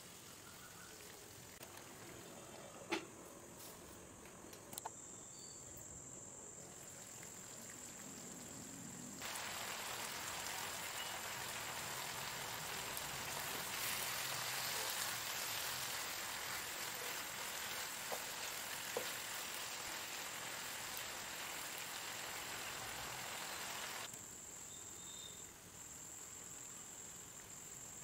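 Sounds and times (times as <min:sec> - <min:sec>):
gravy simmering in a pan: 0:09.2 - 0:24.1.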